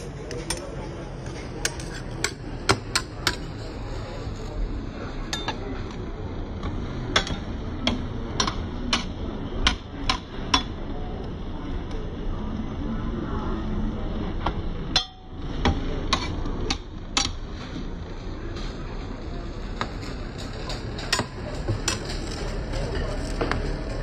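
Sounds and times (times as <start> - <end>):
steady background noise: 0.0 - 24.0
metal spatulas tapping steel plate: 15.0 - 17.4.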